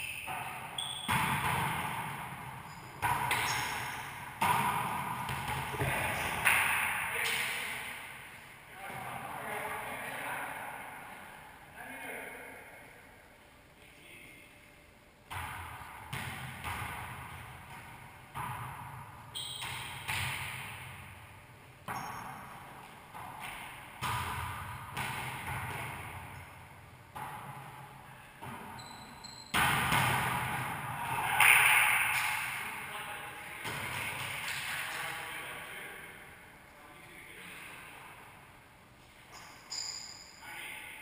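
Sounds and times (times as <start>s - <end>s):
rubber ball hits echoing: 3.0s - 7.8s, 29.6s - 32.6s.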